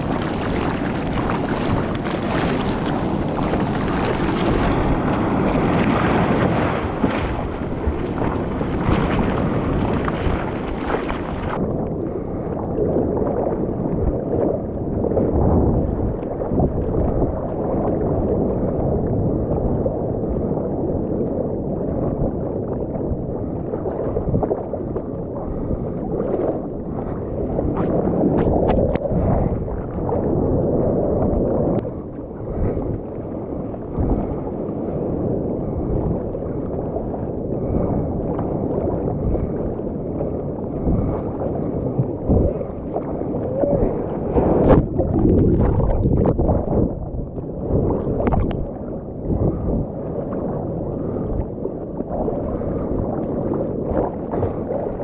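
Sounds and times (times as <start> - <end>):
hands paddling through water: 0.0 - 4.6, 6.2 - 11.6
muffled water sloshing and gurgling: 0.0 - 55.0.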